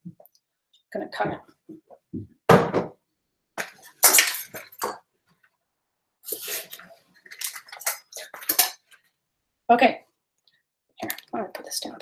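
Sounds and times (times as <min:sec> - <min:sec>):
utensils clinking: 0:06.3 - 0:09.0.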